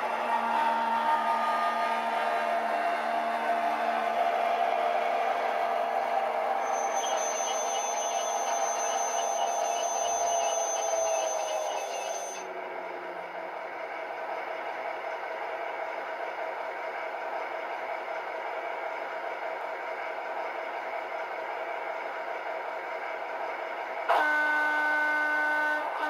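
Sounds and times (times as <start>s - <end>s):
model train diesel engine sound: 0.0s - 26.0s
high steady squeal: 5.4s - 12.7s.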